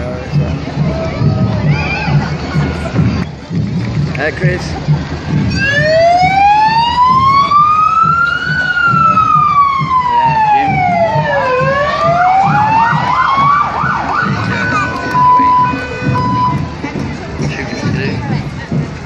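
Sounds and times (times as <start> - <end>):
electronic siren wailing: 5.5 - 16.6
siren yelp warbling: 5.5 - 16.6.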